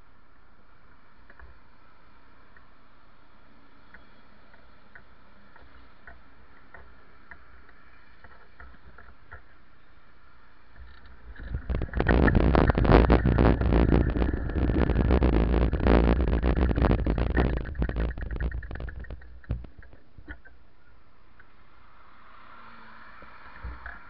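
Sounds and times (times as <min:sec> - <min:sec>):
road vibration rumbling: 0:03.4 - 0:24.0
wind buffeting microphone: 0:11.2 - 0:20.4.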